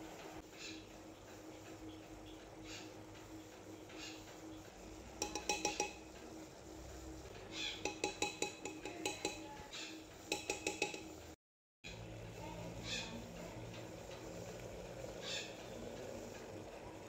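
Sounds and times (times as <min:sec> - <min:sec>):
spoon clinking against pot: 0:05.2 - 0:06.0, 0:07.8 - 0:09.5, 0:10.3 - 0:11.2.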